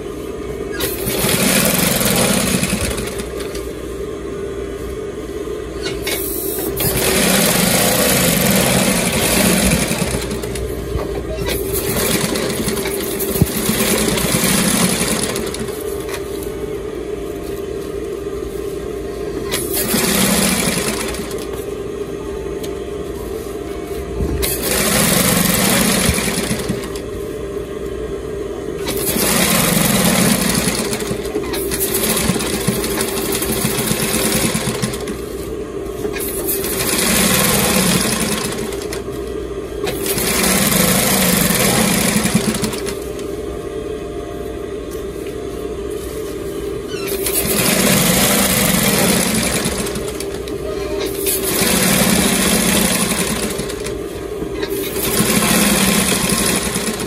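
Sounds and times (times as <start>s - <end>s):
motor hum: 0.0s - 57.0s
sewing machine stitching: 0.7s - 3.6s, 5.8s - 16.4s, 19.4s - 21.6s, 24.4s - 27.1s, 28.8s - 35.4s, 36.0s - 39.1s, 39.8s - 43.2s, 46.9s - 57.0s.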